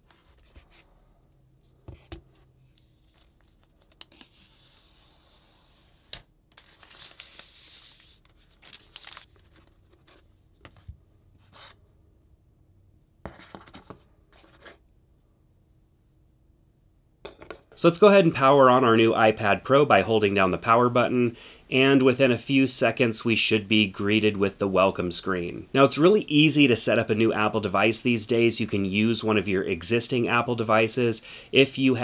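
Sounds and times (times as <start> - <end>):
plastic wrap rustling and tearing: 6.6 - 10.0.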